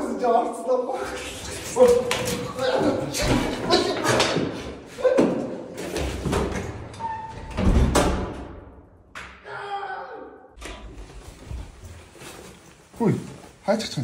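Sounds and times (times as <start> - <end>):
people grunting and shouting: 0.9 - 6.2, 9.3 - 10.6
door shutting: 6.1 - 8.6.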